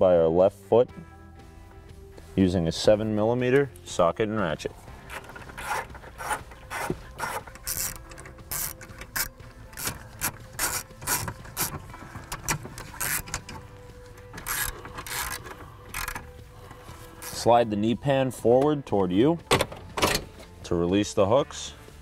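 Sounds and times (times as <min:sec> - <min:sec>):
socket ratchet clicking: 0:05.1 - 0:13.6, 0:14.2 - 0:16.4.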